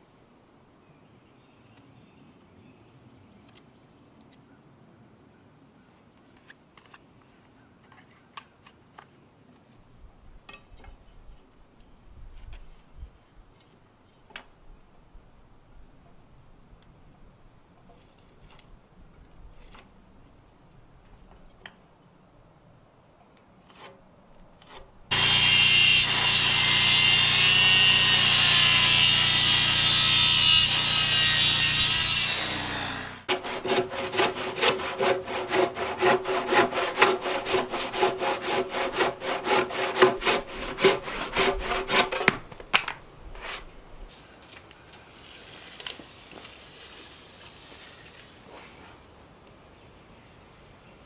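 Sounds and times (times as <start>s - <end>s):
circular saw cutting timber: 24.6s - 42.4s
handsaw sawing: 25.1s - 42.4s.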